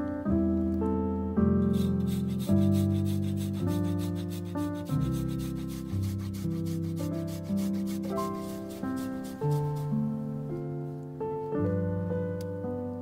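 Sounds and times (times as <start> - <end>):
piano music: 0.0 - 13.0
ginger scraping on grater: 1.7 - 9.9.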